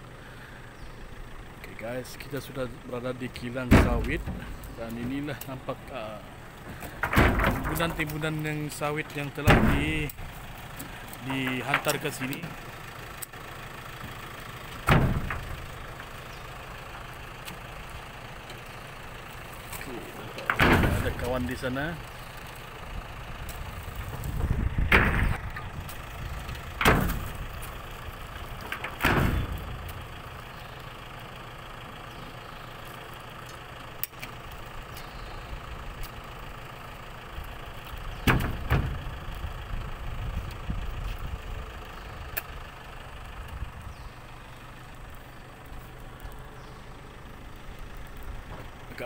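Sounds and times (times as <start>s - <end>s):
low mechanical rumble: 0.0s - 49.0s
loud thumps: 3.7s - 5.3s, 6.8s - 8.2s, 9.4s - 10.2s, 14.8s - 15.8s, 20.5s - 21.5s, 23.9s - 27.8s, 28.6s - 30.4s, 38.2s - 39.2s.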